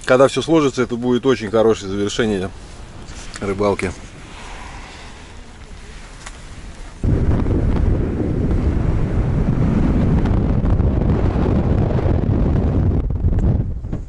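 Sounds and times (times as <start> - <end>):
wind battering microphone: 1.4 - 14.0.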